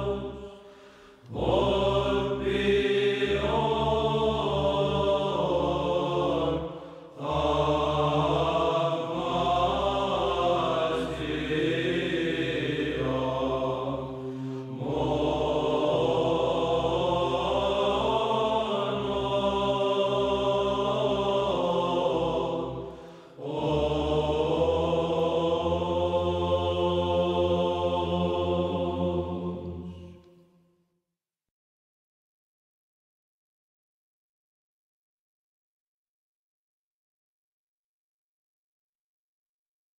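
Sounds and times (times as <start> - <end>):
voices chanting: 0.0 - 30.1.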